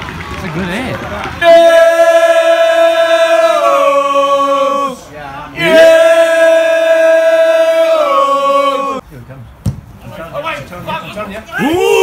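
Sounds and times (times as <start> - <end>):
football supporters singing: 1.4 - 9.0.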